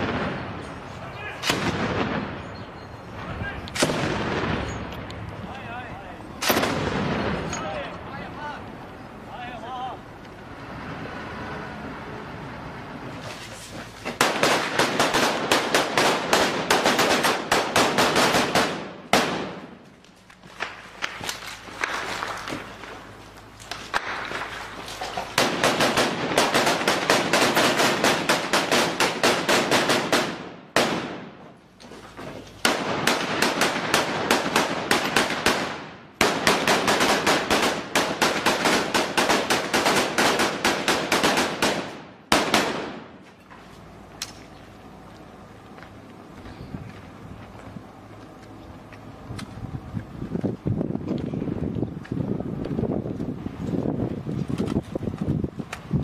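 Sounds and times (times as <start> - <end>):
automatic gunfire bursts: 14.2 - 19.6, 25.4 - 31.2, 32.6 - 43.0.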